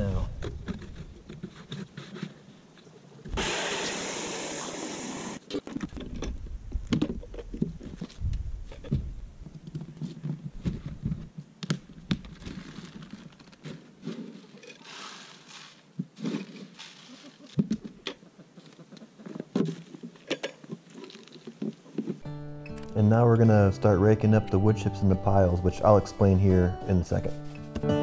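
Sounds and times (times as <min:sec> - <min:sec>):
hose water rushing into plastic: 0:03.3 - 0:05.5.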